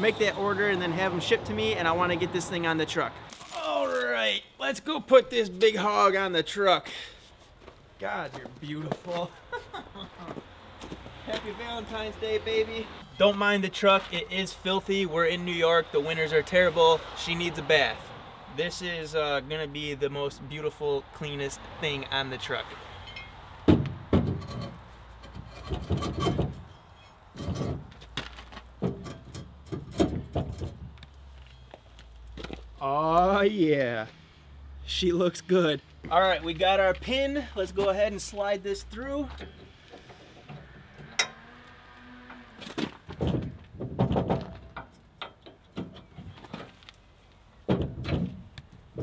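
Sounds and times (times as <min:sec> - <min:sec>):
metal clunks: 0:23.1 - 0:31.0, 0:39.3 - 0:41.4, 0:42.8 - 0:46.8, 0:47.6 - 0:49.0
metal scraping: 0:24.1 - 0:31.0.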